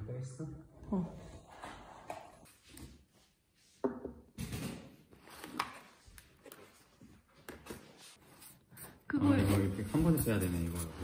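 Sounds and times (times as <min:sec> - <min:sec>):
cardboard boxes set on countertop: 0:01.4 - 0:11.0.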